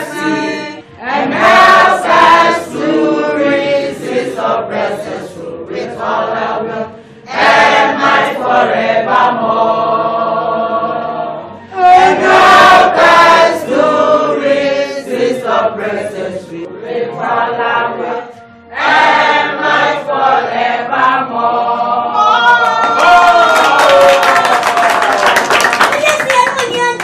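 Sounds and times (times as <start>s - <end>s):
group singing in unison: 0.0s - 23.2s
hand claps: 22.6s - 27.0s.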